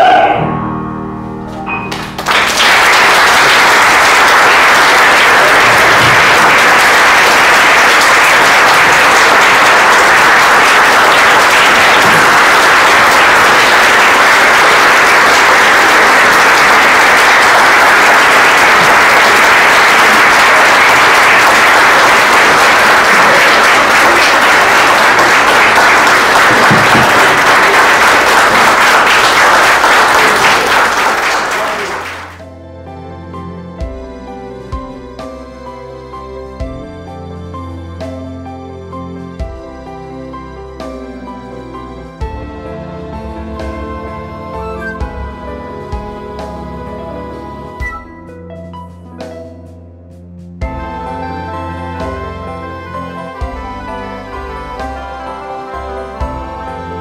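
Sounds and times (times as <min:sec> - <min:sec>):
audience applause: 0:01.9 - 0:32.4.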